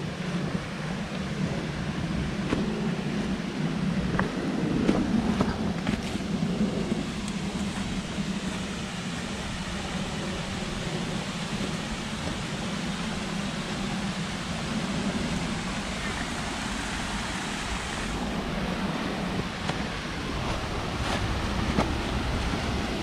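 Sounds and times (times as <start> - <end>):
waterfall pouring over rocks: 6.8 - 22.5.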